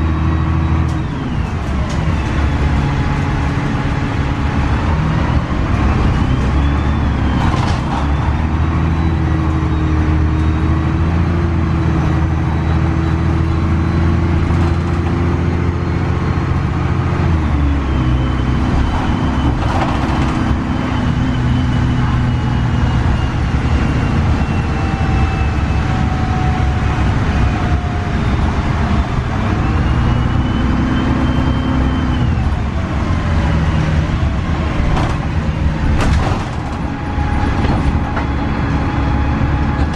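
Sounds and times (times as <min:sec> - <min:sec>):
bus engine from inside: 0:00.0 - 0:39.9
rattles and bumps: 0:18.7 - 0:20.8, 0:34.8 - 0:38.5.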